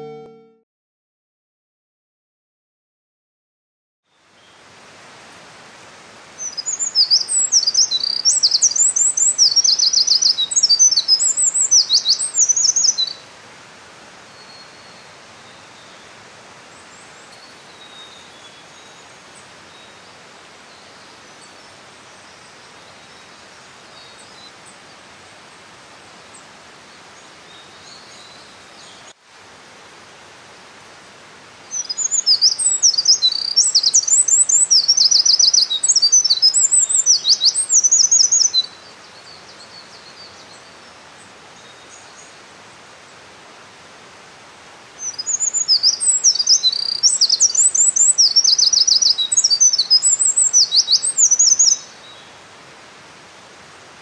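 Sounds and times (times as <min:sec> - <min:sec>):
mountain stream rushing: 0:04.2 - 0:54.0
wren singing trills: 0:06.4 - 0:13.2, 0:31.7 - 0:40.6, 0:45.0 - 0:52.0.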